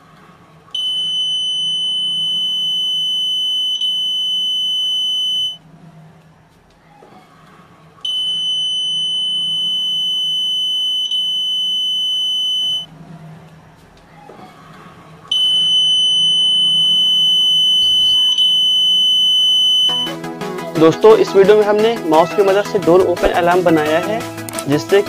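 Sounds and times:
piezo buzzer high-pitched tone: 0:00.8 - 0:05.6, 0:08.1 - 0:12.9, 0:15.3 - 0:20.2.

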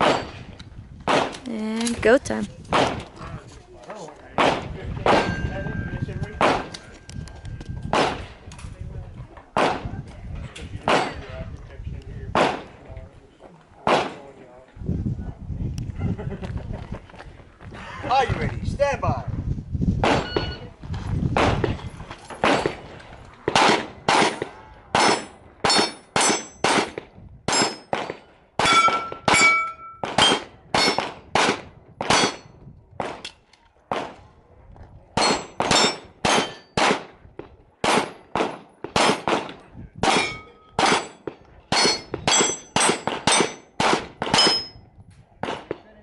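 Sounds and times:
rapid pistol shots: 0:01.1 - 0:01.4, 0:04.4 - 0:05.4, 0:07.9 - 0:08.3, 0:09.6 - 0:09.9, 0:12.4 - 0:12.8, 0:13.9 - 0:14.3, 0:22.4 - 0:32.4, 0:35.2 - 0:37.2, 0:37.8 - 0:44.7, 0:45.4 - 0:45.8
steel target ringing: 0:28.6 - 0:31.0, 0:40.1 - 0:43.7, 0:44.4 - 0:44.8.

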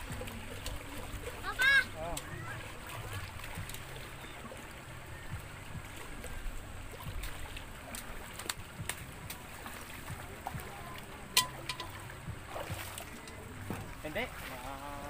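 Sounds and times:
river water trickling and splashing: 0:00.0 - 0:15.0
water poured from metal pot: 0:11.4 - 0:12.8.

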